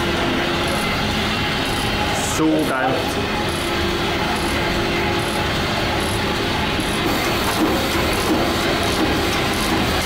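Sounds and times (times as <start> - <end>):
steam pump clattering: 6.8 - 10.0.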